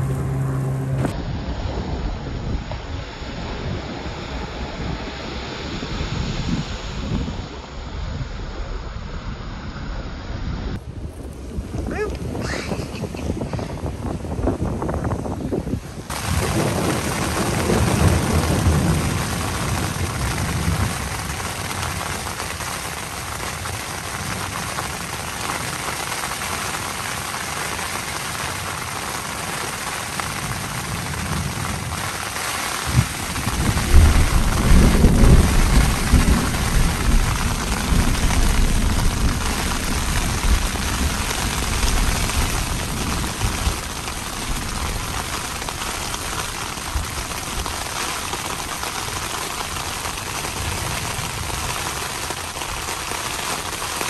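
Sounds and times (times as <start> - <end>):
rain hissing: 0.0 - 54.0
thunder rumbling: 0.0 - 54.0
thunder crack: 16.1 - 25.0, 32.8 - 51.6.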